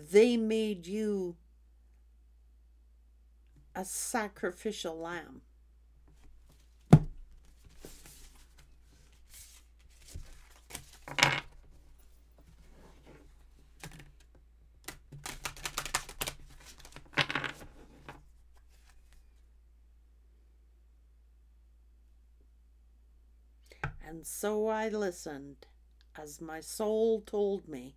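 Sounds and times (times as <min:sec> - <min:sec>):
cards being shuffled: 0:06.2 - 0:19.4
cards sliding and tapping: 0:12.4 - 0:19.2.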